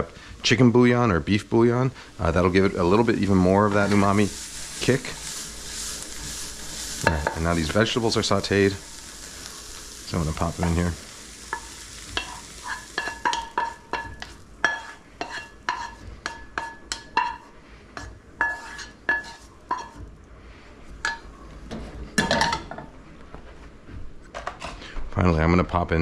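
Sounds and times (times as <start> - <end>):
spatula scraping metal skillet: 2.0 - 9.7, 10.6 - 20.0.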